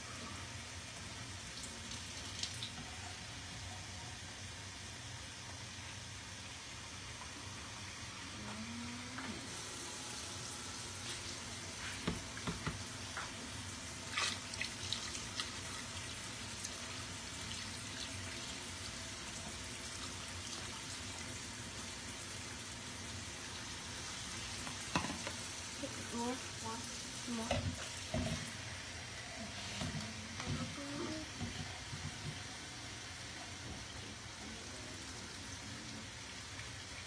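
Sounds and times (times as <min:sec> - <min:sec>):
tap water running into a sink: 0:01.5 - 0:02.9, 0:11.8 - 0:13.4, 0:14.0 - 0:23.8, 0:24.5 - 0:28.6.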